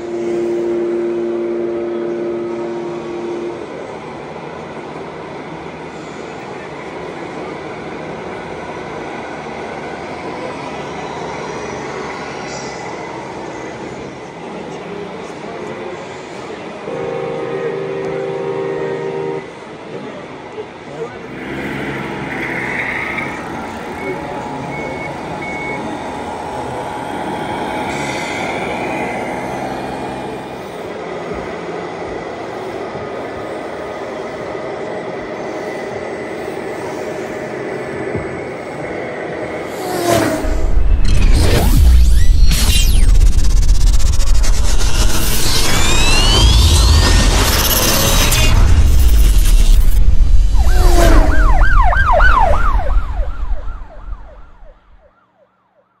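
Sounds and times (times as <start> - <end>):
diesel truck engine sounds: 0.0 - 32.2, 34.5 - 54.9
warbling electronic tone: 40.3 - 55.1
deep rumble: 40.4 - 55.0.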